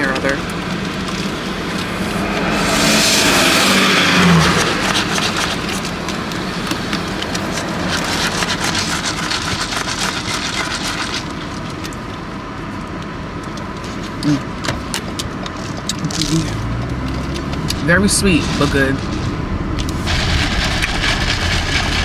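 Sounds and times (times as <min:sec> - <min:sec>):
car interior background: 0:00.0 - 0:22.0
rushing noise with low hum: 0:00.0 - 0:22.0
ice rattling in plastic cup: 0:04.2 - 0:06.2, 0:06.8 - 0:12.0, 0:15.5 - 0:22.0.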